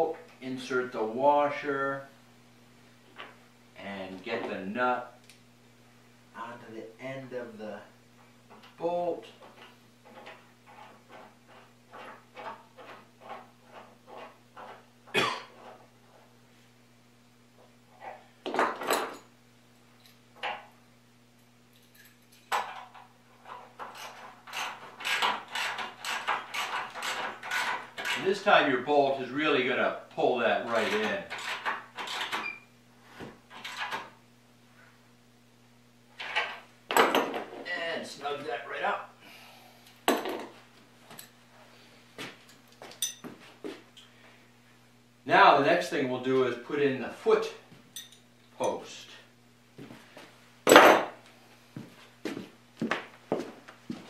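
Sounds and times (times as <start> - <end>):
rapid clicks of nut tightening: 23.8 - 28.2
metal bolt and nut clinking: 42.5 - 43.2
metal tools clinking and knocking: 42.5 - 43.3, 48.0 - 48.8
footsteps on plywood floor: 51.8 - 54.0.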